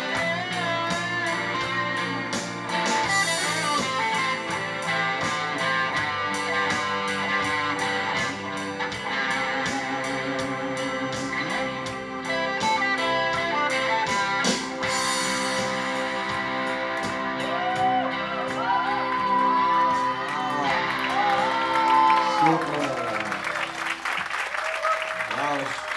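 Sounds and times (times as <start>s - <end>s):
wavering guitar notes: 0.0s - 24.0s
rock band playing: 0.0s - 25.9s.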